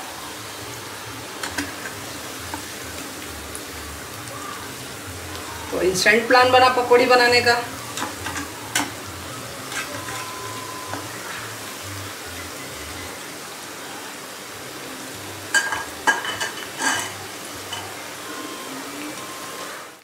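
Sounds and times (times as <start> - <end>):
deep-frying sizzle in oil: 0.0 - 20.0
slotted spoon stirring: 9.6 - 11.0, 15.6 - 17.9.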